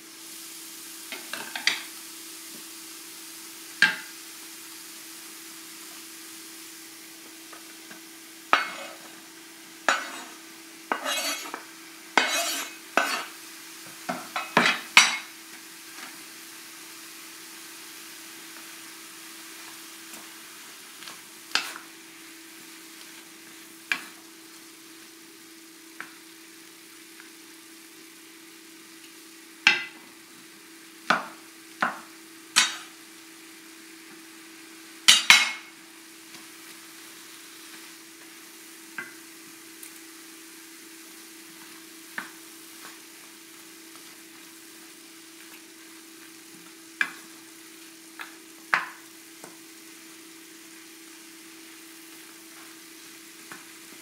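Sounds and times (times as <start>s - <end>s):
faint sizzle: 0.0s - 54.0s
knife scraping cutting board: 8.6s - 9.0s, 9.9s - 11.6s, 12.2s - 13.3s
wooden spatula knocking on pan: 29.7s - 30.0s, 31.1s - 32.0s.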